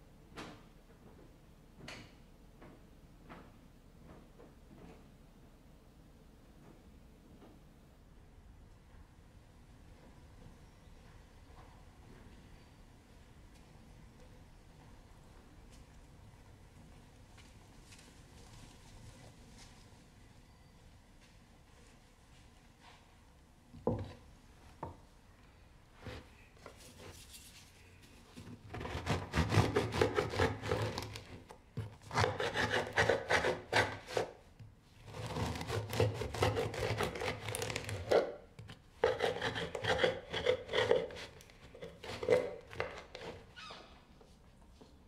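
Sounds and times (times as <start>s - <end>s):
bread knife sawing through loaf: 28.7s - 31.2s, 32.0s - 34.4s, 35.1s - 38.2s, 39.0s - 43.4s.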